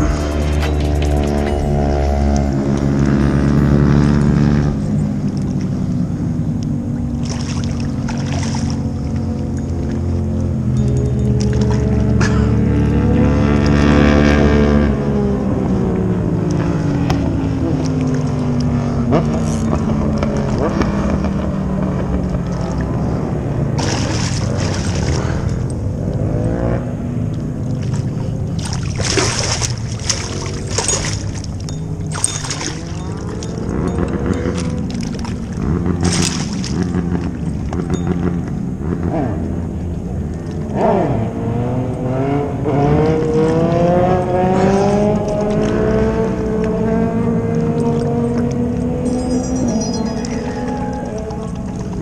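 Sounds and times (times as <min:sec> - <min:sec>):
motorcycle engines droning: 0:00.0 - 0:52.0
fish splashing at the surface: 0:07.0 - 0:10.0, 0:23.8 - 0:25.6, 0:27.6 - 0:33.7, 0:34.4 - 0:37.7.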